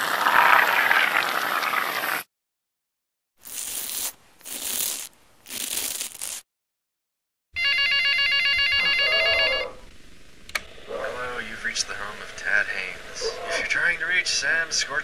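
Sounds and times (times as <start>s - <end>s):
telephone ringing: 7.6s - 9.8s.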